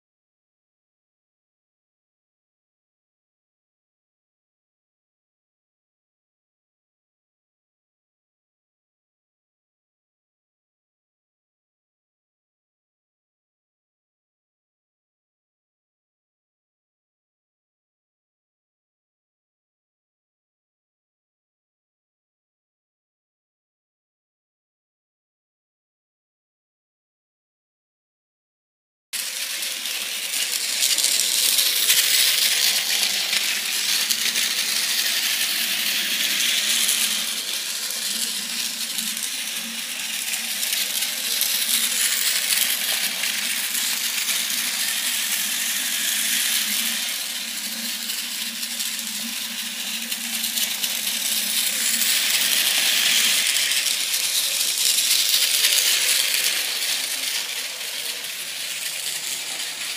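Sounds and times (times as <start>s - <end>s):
toy train rattling on plastic track: 29.2s - 59.9s.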